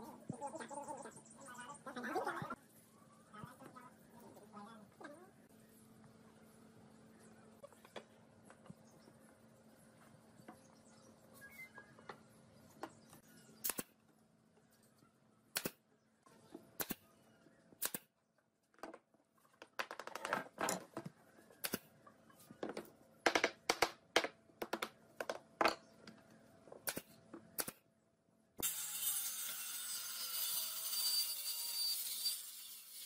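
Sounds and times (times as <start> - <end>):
pneumatic nailer firing nails: 26.8 - 27.8
circular saw cutting wood: 28.6 - 33.0.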